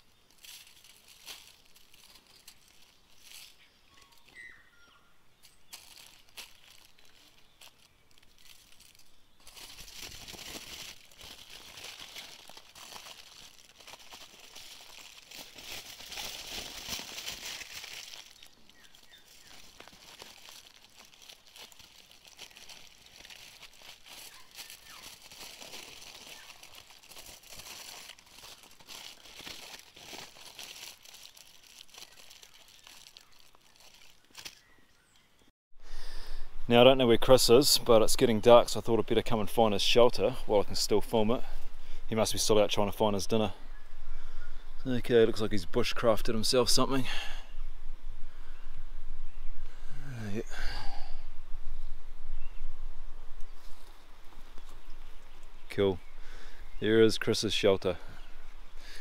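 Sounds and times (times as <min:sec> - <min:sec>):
aluminium foil crinkling: 0:00.0 - 0:04.5, 0:05.4 - 0:34.8.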